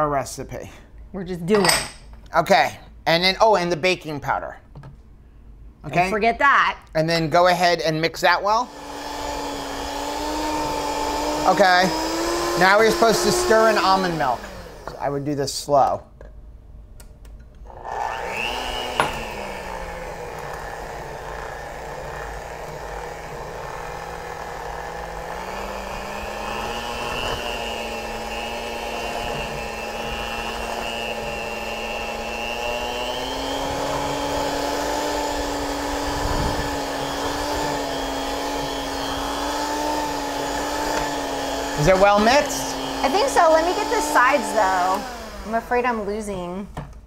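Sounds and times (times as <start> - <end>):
electric hand mixer whining: 8.6 - 15.1, 17.7 - 46.3.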